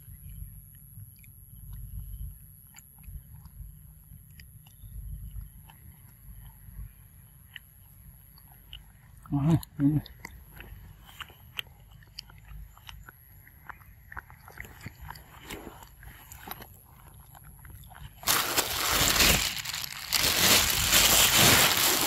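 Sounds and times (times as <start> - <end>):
monkey chewing food: 0.2 - 22.0
rough rustling at microphone: 18.2 - 22.0.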